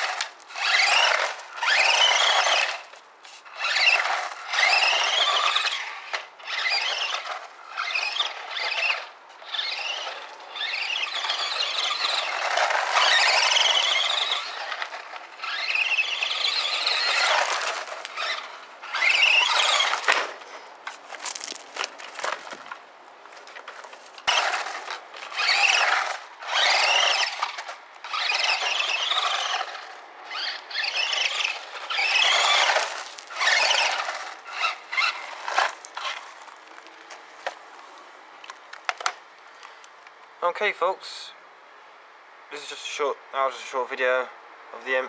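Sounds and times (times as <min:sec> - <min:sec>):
electric motor whining in bursts: 0:00.0 - 0:20.1, 0:24.3 - 0:36.3.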